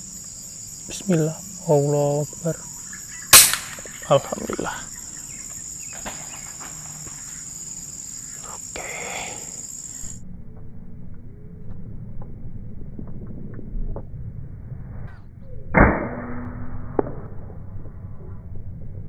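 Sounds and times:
high-pitched insect drone: 0:00.0 - 0:10.2
air rifle shot: 0:03.3 - 0:04.0.

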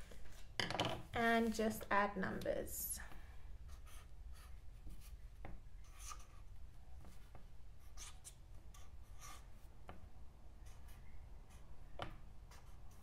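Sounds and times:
marker pen writing on paper: 0:03.7 - 0:05.2, 0:05.8 - 0:09.7, 0:10.6 - 0:11.8, 0:12.5 - 0:13.0.

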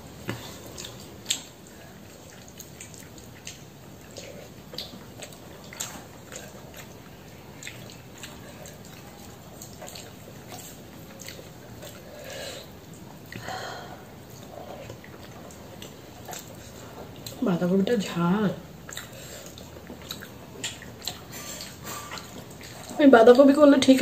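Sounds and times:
chewing: 0:00.2 - 0:24.0
wet mouth clicks: 0:18.8 - 0:22.8.

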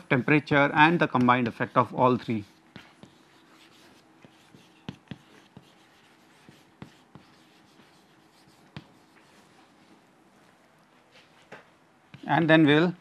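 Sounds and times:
chalk scratching on chalkboard: 0:00.0 - 0:09.8, 0:12.1 - 0:12.5
chalk tapping on board: 0:00.9 - 0:09.4, 0:12.1 - 0:12.4.

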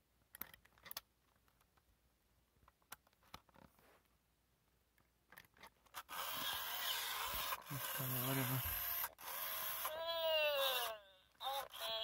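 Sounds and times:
faint toy clicks and rustles: 0:05.3 - 0:12.0.

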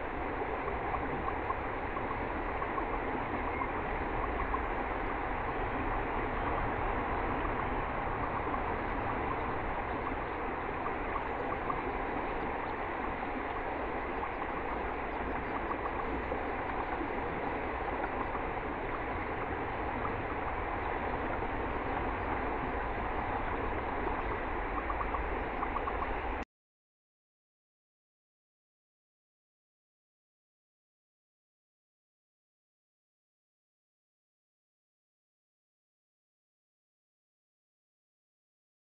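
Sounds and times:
river water flowing: 0:00.0 - 0:26.4.

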